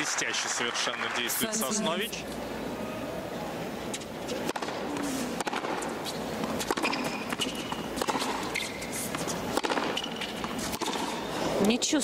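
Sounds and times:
shoes squeaking on court: 3.9 - 11.5
tennis balls struck by rackets: 4.0 - 11.7.

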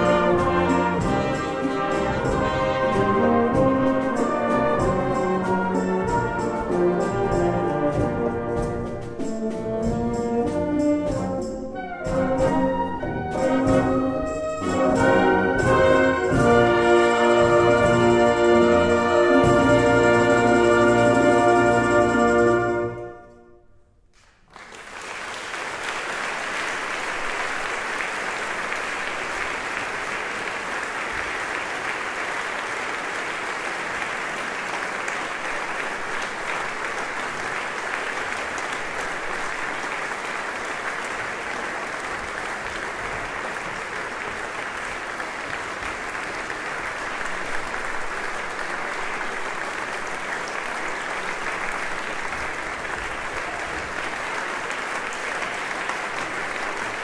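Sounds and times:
audience applause: 0.0 - 8.2, 24.2 - 57.0.

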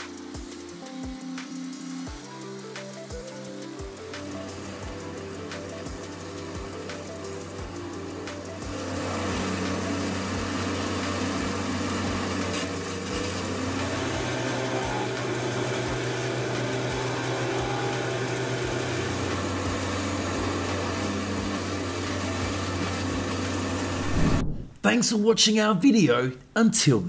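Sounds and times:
tub grinder humming: 0.0 - 24.4
faint low thumps: 24.0 - 24.8.

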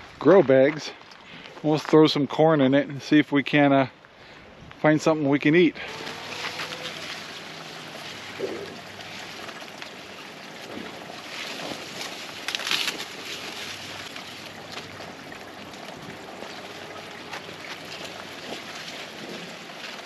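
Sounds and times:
dry corn stalks rustling: 4.2 - 20.0.

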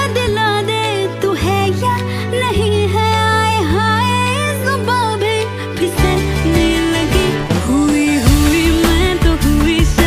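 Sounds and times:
film-style song: 0.0 - 10.0.

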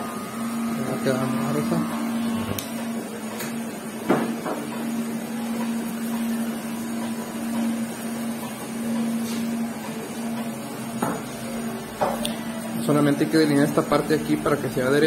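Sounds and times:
electric hair clipper buzzing: 1.5 - 2.8.

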